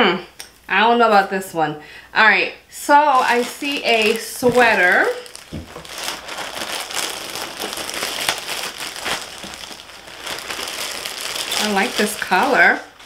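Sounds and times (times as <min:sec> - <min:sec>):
plastic packaging crinkling: 0:03.0 - 0:13.0.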